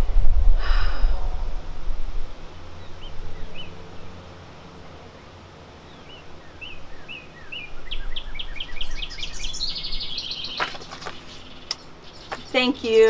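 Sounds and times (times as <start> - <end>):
bird chirping: 2.7 - 4.2, 5.1 - 13.0.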